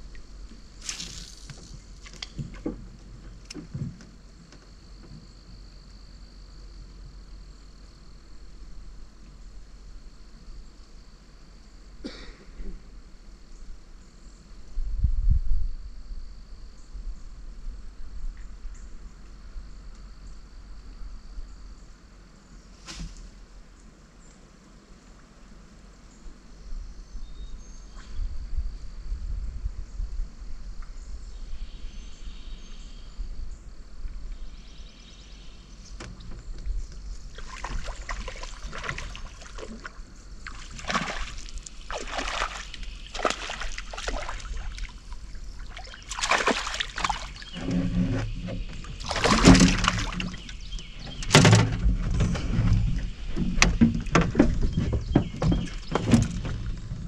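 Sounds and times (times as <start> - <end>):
wind rumble on microphone: 14.6 - 19.8, 26.5 - 32.4, 47.1 - 57.0
water splashing around boat: 36.0 - 57.0
knocks in boat: 46.2 - 57.0.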